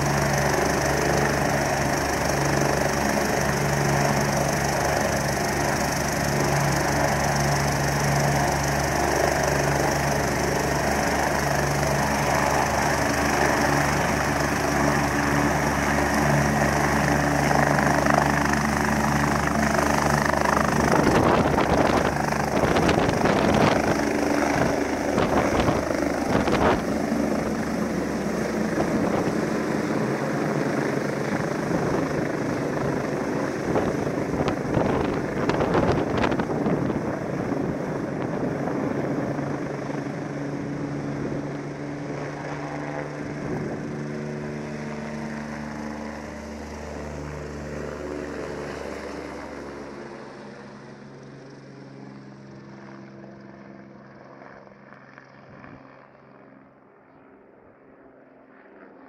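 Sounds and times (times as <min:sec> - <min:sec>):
helicopter rotor and turbines: 0:00.0 - 0:59.0
rotor downwash gusting on microphone: 0:20.7 - 0:27.5.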